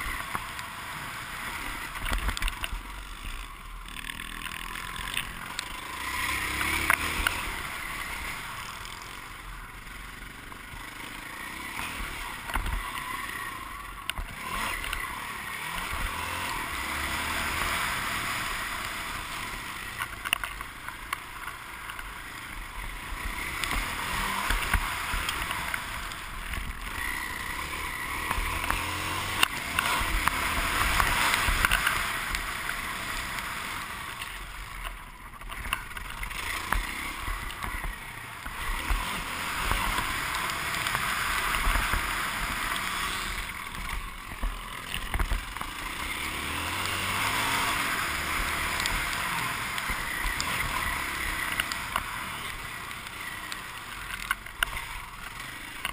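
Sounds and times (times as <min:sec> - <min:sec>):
motocross bike engine revving: 0:00.0 - 0:55.9.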